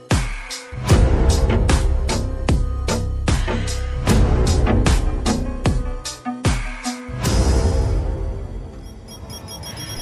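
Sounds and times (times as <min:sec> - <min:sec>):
music with heavy bass and drums: 0:00.0 - 0:07.1.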